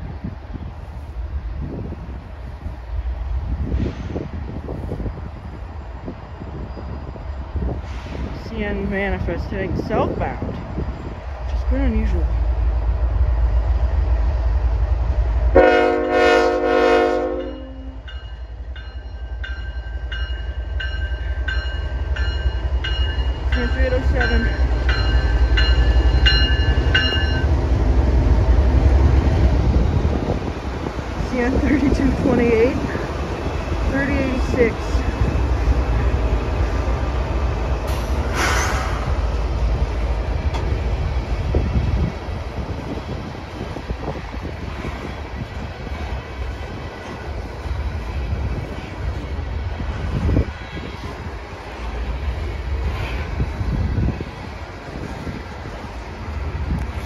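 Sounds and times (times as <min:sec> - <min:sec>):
freight train rumble: 0:00.0 - 0:57.0
locomotive air horn: 0:15.6 - 0:18.0
train bell ringing: 0:17.3 - 0:27.6.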